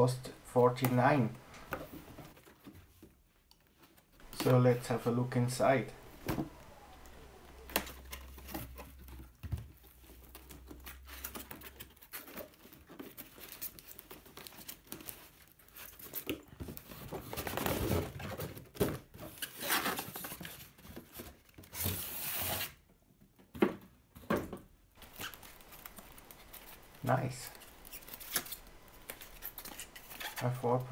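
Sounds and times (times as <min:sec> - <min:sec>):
cardboard rustling: 0:00.0 - 0:03.0, 0:03.9 - 0:21.4, 0:25.0 - 0:30.9
tape and cardboard tearing: 0:21.7 - 0:22.8, 0:25.0 - 0:30.9.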